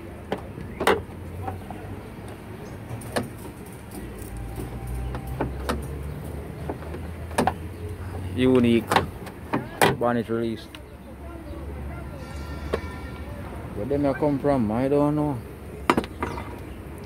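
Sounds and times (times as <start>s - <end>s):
car bonnet latch clicks: 6.6s - 7.6s, 8.8s - 10.0s.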